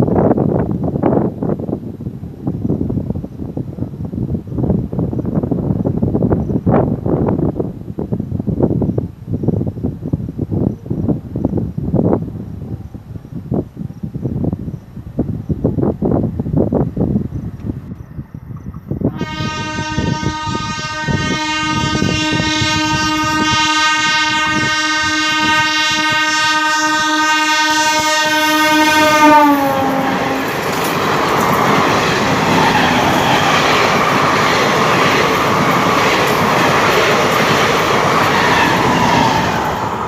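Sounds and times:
train coaches rumbling past: 14.4 - 40.0
train horn blast: 19.1 - 30.7
train wheels clattering on rails: 30.4 - 39.8.

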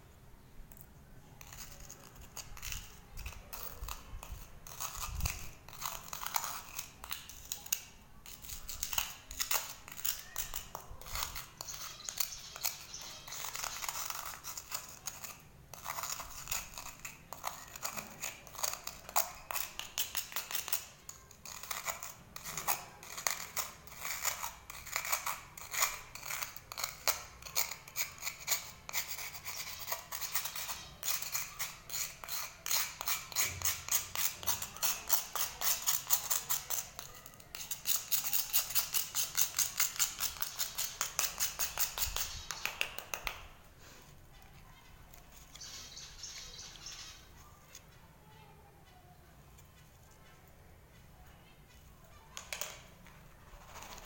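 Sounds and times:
knife scraping cuttlefish bone: 1.4 - 43.4.

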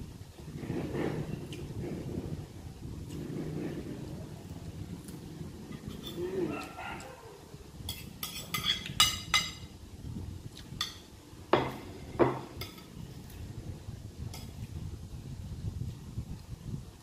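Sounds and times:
cutlery clinking on plate: 7.9 - 9.7, 10.8 - 13.0.

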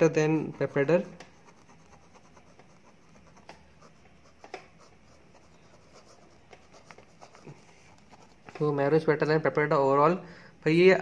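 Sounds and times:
pen scratching on paper: 0.0 - 9.0
pen ticks: 0.9 - 3.7, 4.3 - 4.9.

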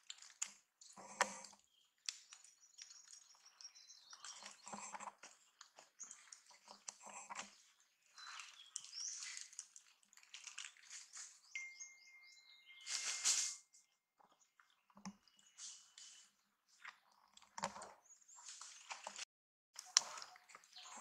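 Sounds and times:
high chirps: 11.5 - 13.8.

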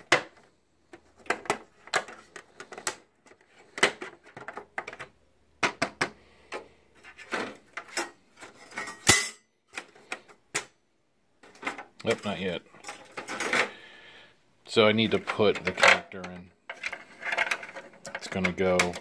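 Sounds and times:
plastic and metal parts clicking: 15.1 - 19.0.

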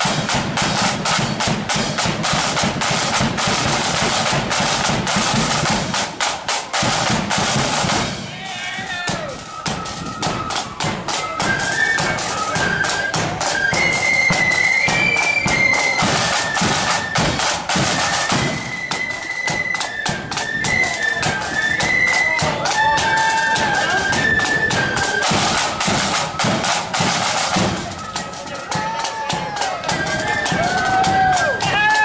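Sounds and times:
shrill flute melody: 0.0 - 32.0
side drums beating rapidly: 0.0 - 32.0.

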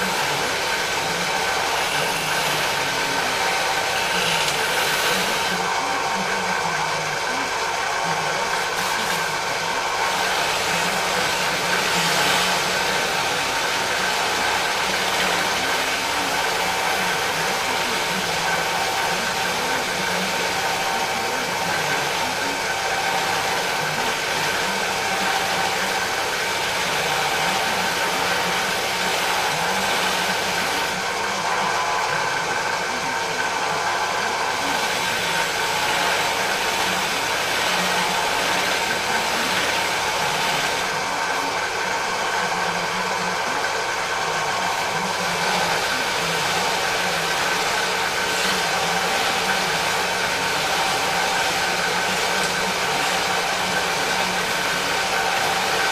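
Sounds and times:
drill press motor whir: 0.0 - 55.9.

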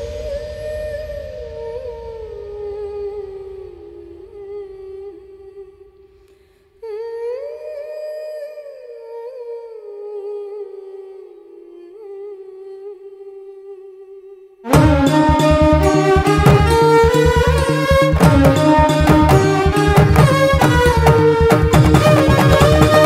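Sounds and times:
person humming a slow melody: 6.8 - 16.1.

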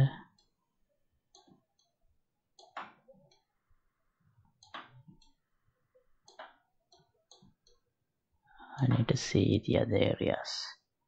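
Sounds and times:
computer mouse clicks: 2.6 - 3.5, 4.6 - 5.4, 6.2 - 7.8.

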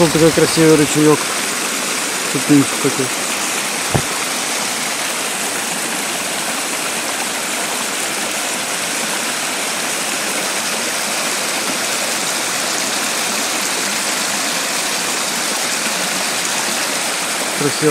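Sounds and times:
stream splashing over rocks: 0.0 - 17.9
low bump: 3.9 - 4.2.

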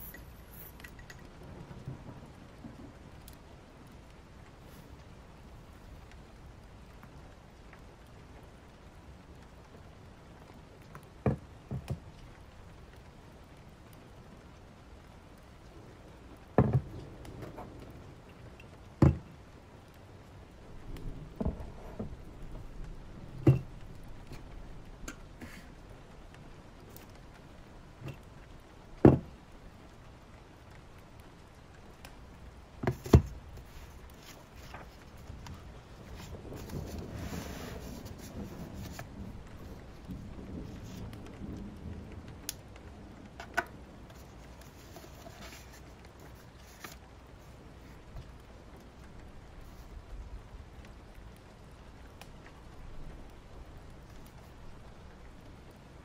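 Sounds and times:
faint rain hiss: 0.0 - 56.0
book knocking on desk: 16.6 - 16.8, 19.0 - 19.2, 29.0 - 29.2.

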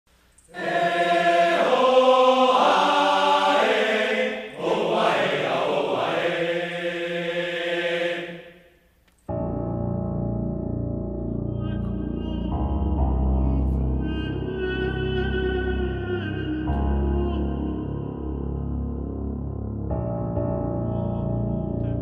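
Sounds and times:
choir-like chanted vocal: 0.5 - 8.7.

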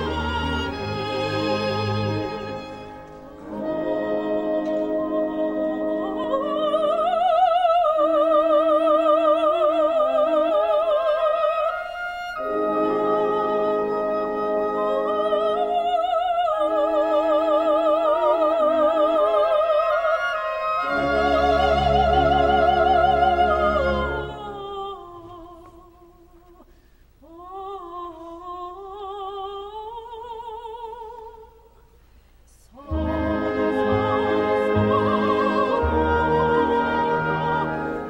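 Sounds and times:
orchestra playing: 0.0 - 6.7, 11.9 - 15.7, 20.1 - 24.6, 32.8 - 38.0
woman singing operatically: 3.6 - 26.6, 27.2 - 31.8, 32.7 - 38.0.

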